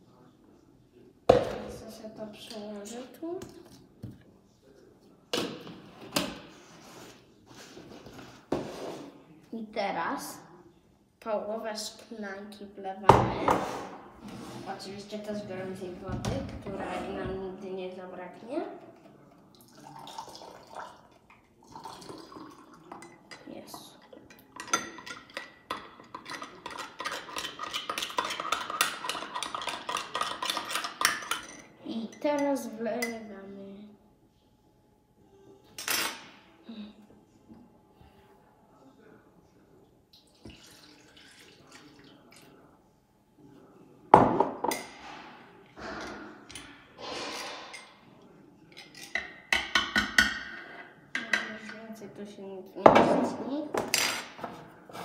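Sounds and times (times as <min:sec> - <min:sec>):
spoon stirring in glass jug: 0:21.7 - 0:32.4.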